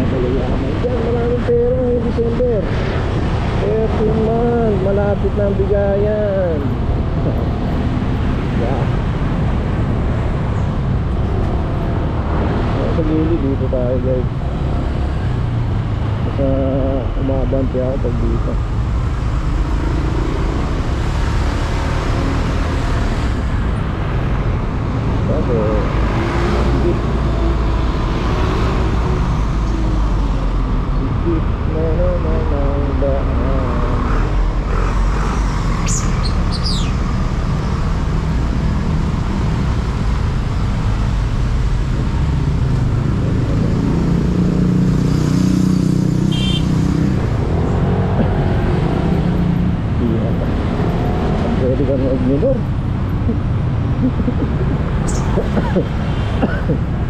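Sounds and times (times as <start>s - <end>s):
surrounding traffic: 0.0s - 57.0s
motorcycle engine: 32.6s - 56.8s.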